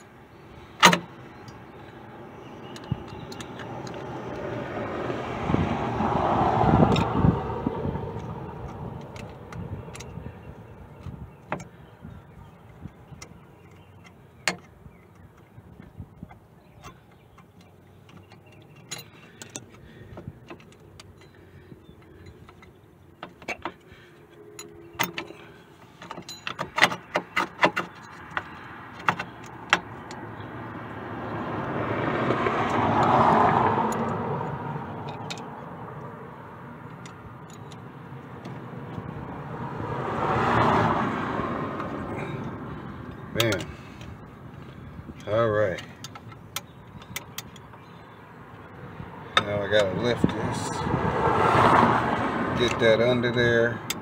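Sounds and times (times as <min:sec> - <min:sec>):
vehicles passing by: 0:00.0 - 0:54.0
pliers clinking on metal springs: 0:18.4 - 0:19.8, 0:24.4 - 0:28.4.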